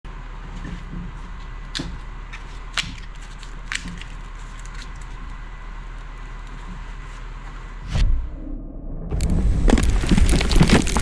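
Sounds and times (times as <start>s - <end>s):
low hum: 0.1s - 11.0s
bark cracking off log: 9.2s - 11.0s.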